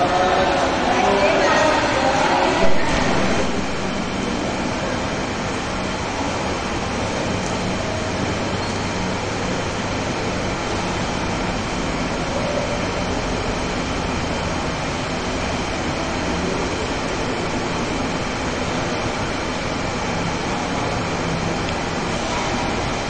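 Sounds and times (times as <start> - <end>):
large hall background noise: 0.0 - 23.0.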